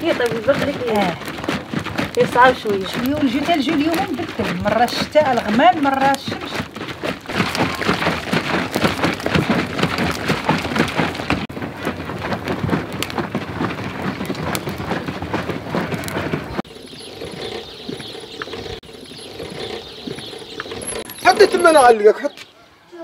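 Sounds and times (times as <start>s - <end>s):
wood fire crackling: 0.0s - 22.6s.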